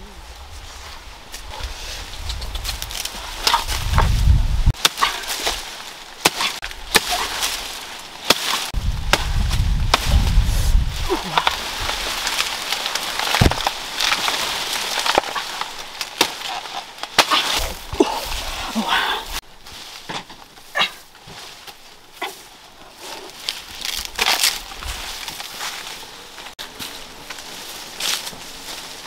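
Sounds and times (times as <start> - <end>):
leaves rustling: 0.0 - 29.0
blade chopping plant stalk: 4.7 - 10.4, 11.2 - 17.8.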